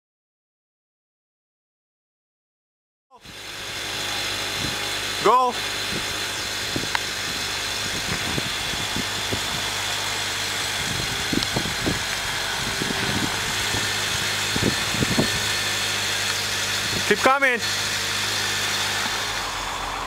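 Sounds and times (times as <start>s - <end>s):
car engine idling: 3.2s - 20.0s.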